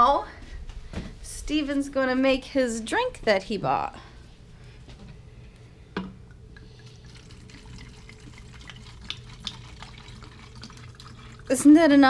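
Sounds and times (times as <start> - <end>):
liquid trickling and glugging: 6.2 - 11.9.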